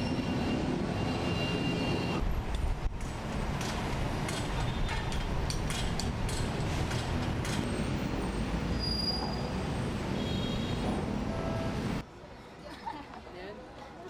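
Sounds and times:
engine and vehicle rumble: 0:00.0 - 0:10.1.

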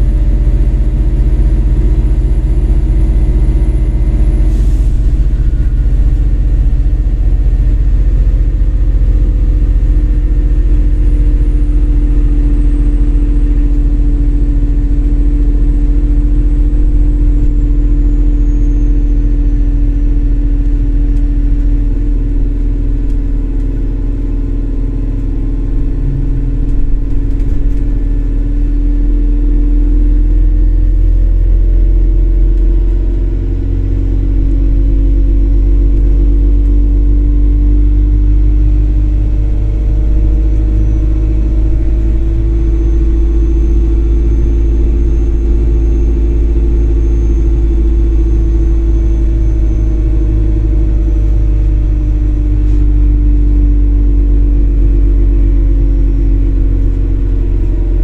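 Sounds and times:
bus engine rumbling: 0:00.0 - 0:58.0
drivetrain hum rising and falling: 0:00.0 - 0:58.0.

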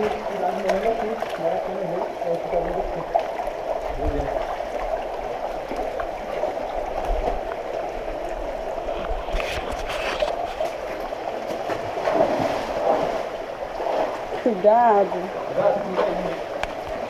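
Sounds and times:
stream running over rocks: 0:00.0 - 0:17.0.

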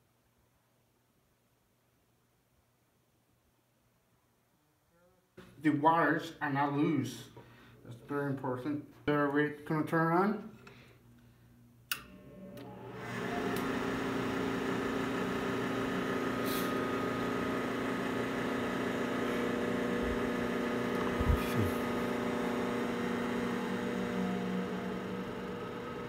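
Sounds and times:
switch click: 0:11.9 - 0:12.1
electric fan motor humming: 0:12.0 - 0:26.0.

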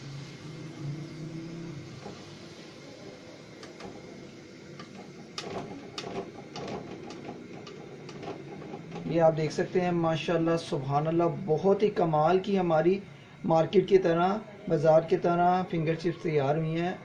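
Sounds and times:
chips sizzling in hot oil: 0:00.0 - 0:09.8.

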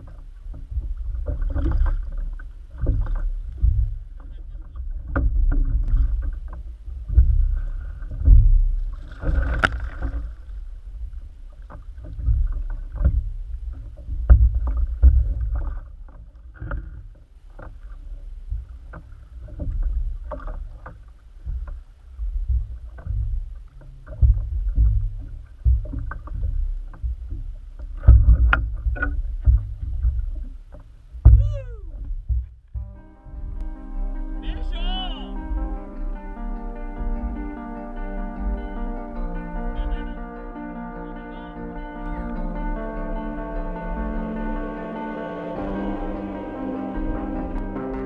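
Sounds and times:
knocks and thumps: 0:00.0 - 0:10.3, 0:11.6 - 0:17.8, 0:18.5 - 0:33.6
low rumble: 0:00.0 - 0:16.6, 0:17.3 - 0:48.0
water sloshing against kayak: 0:00.0 - 0:48.0.

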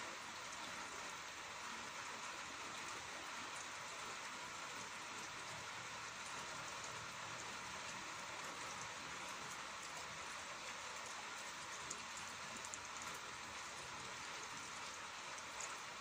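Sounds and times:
rain falling: 0:00.0 - 0:16.0
raindrop ticks: 0:07.6 - 0:15.8.

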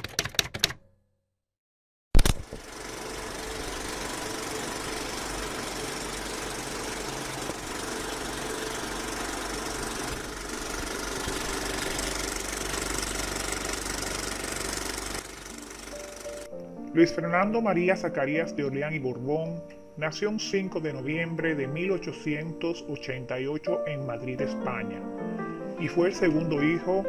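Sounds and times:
film projector whirring and rattling: 0:02.2 - 0:16.5
film projector starting click: 0:02.2 - 0:16.6.

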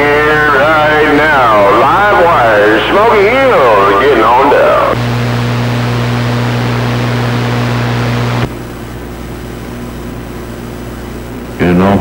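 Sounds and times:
radio hum: 0:00.0 - 0:08.6
radio static hiss: 0:00.0 - 0:08.6
quiet band static: 0:00.0 - 0:12.0.

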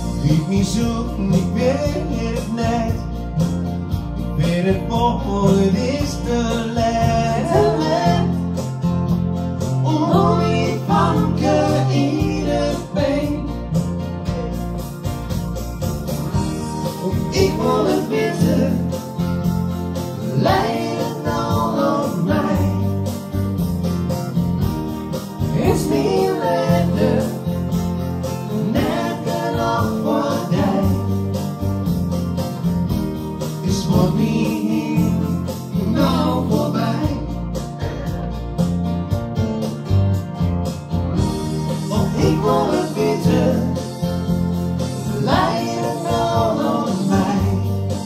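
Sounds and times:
man and woman singing: 0:00.2 - 0:03.1, 0:04.4 - 0:08.6, 0:09.8 - 0:13.8, 0:17.0 - 0:19.0, 0:20.3 - 0:23.0, 0:25.5 - 0:27.6, 0:28.4 - 0:31.2, 0:33.6 - 0:37.4, 0:41.9 - 0:44.0, 0:45.1 - 0:48.0.

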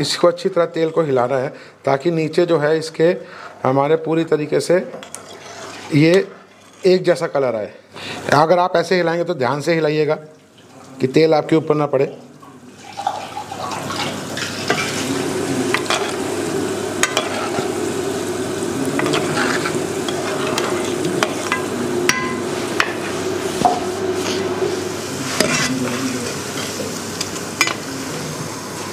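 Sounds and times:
oil sizzling and bubbling: 0:05.0 - 0:06.9, 0:10.2 - 0:28.9.

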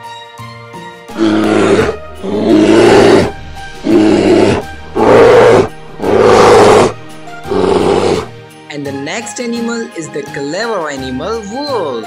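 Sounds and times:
background music: 0:00.0 - 0:12.0
bear roaring: 0:01.1 - 0:08.4.

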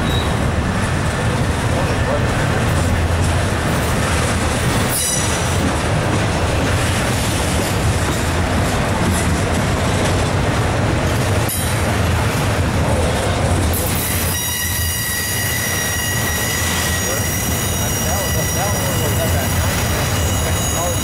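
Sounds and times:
freight train wheels rumbling on rail: 0:00.0 - 0:21.0
high-pitched wheel squeals: 0:14.0 - 0:21.0.

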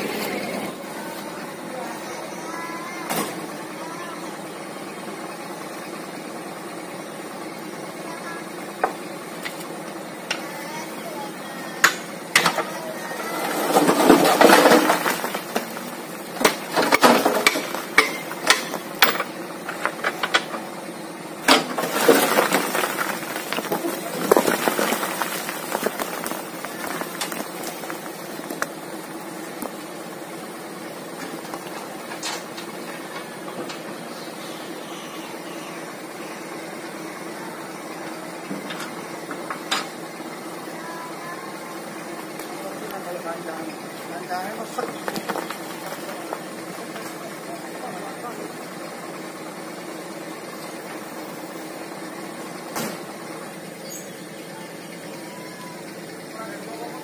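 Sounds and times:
truck engine idling: 0:00.0 - 0:57.0
sand and soil spilling: 0:21.7 - 0:28.6.

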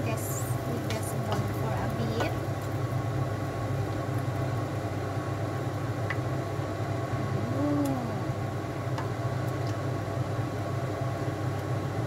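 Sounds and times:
exhaust fan humming: 0:00.0 - 0:12.0
stew boiling: 0:00.0 - 0:12.0.

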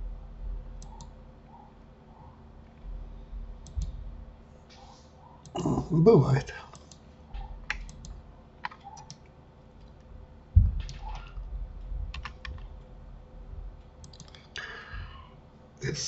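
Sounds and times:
keyboard and mouse clicking: 0:00.8 - 0:01.1, 0:03.6 - 0:04.0, 0:06.7 - 0:10.0, 0:10.8 - 0:11.4, 0:12.1 - 0:12.7, 0:14.0 - 0:14.6.

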